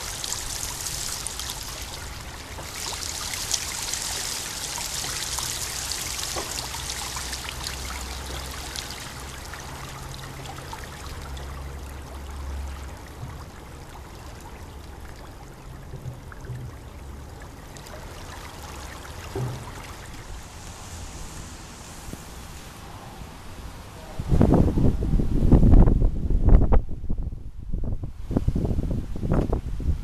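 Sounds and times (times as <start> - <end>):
water splashing down stone wall: 0.0 - 20.5.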